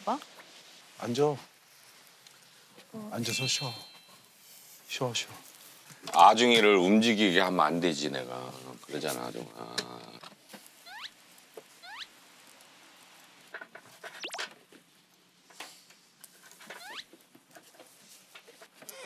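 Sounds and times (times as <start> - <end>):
rising comedic squeaks: 10.9 - 11.1, 11.8 - 12.1, 14.2 - 14.5, 16.8 - 17.1.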